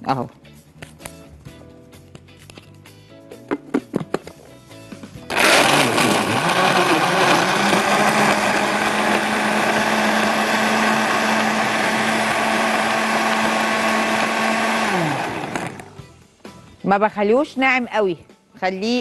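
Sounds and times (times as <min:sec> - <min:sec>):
blender crushing ice: 0:05.2 - 0:16.0.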